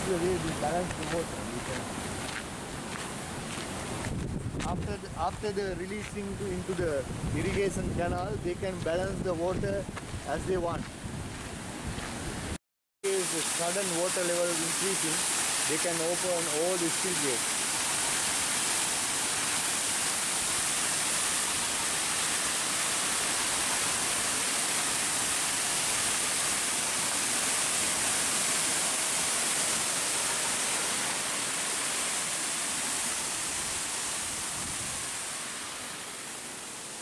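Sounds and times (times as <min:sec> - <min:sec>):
water rushing and splashing: 0:00.0 - 0:04.2, 0:13.1 - 0:37.0.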